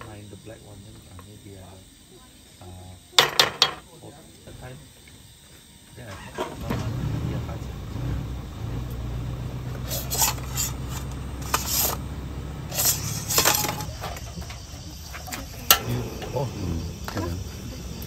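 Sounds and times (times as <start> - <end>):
crickets chirping: 0.0 - 18.0
stove hum: 0.0 - 18.0
bursts of hiss: 12.6 - 18.0.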